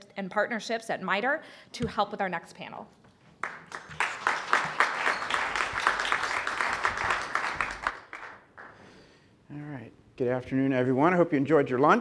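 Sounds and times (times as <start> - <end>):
audience applauding: 3.4 - 8.8.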